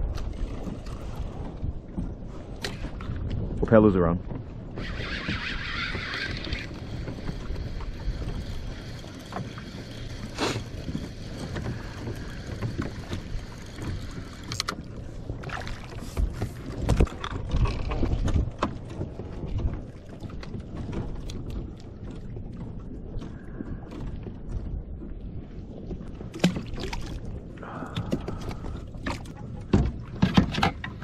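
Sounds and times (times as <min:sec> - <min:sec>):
water against kayak hull: 0:00.0 - 0:31.0
wind rumbling on microphone: 0:00.0 - 0:31.0
fishing rod and reel clicks: 0:04.8 - 0:10.6, 0:13.8 - 0:14.8, 0:16.8 - 0:18.5.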